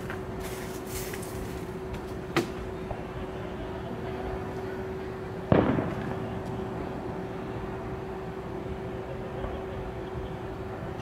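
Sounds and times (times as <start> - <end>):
firework boom with echo: 5.5 - 6.3.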